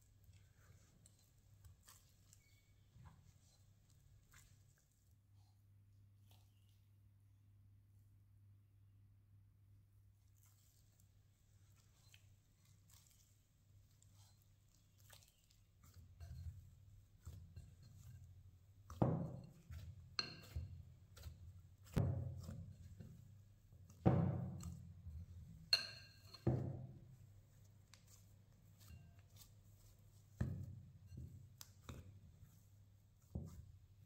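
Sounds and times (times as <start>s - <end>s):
dough squishing: 0.0s - 8.1s, 9.8s - 34.0s
dough thumping in bowl: 13.9s - 34.0s
glass bowl clinking: 19.2s - 20.8s, 25.6s - 26.7s.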